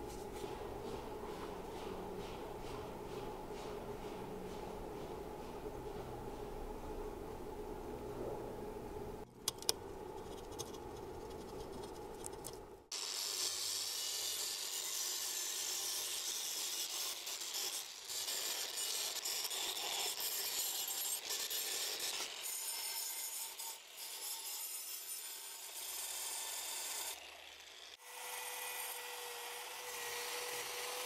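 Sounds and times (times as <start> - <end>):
wire brush grinder scrubbing metal: 12.9 - 31.0.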